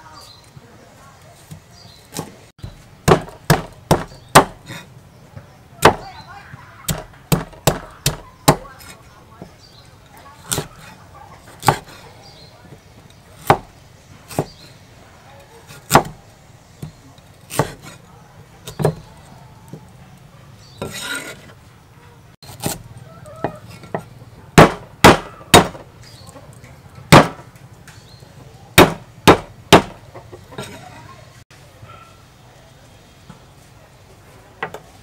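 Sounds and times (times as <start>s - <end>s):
cleaver scraping: 1.2s - 4.9s, 6.9s - 14.8s, 16.8s - 19.9s, 20.6s - 21.6s, 22.4s - 28.1s, 29.8s - 31.1s
cleaver striking wooden block: 2.2s - 4.8s, 23.4s - 25.8s, 27.1s - 27.5s, 28.8s - 30.0s.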